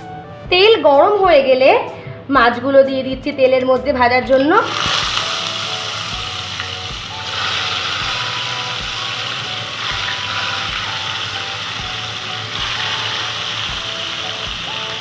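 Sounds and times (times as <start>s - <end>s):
fish sizzling in hot oil: 4.6s - 15.0s.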